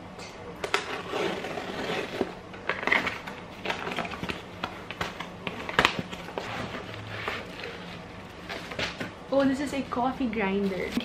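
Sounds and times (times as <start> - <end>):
cardboard scraping and rustling: 0.7 - 4.4, 5.0 - 9.1.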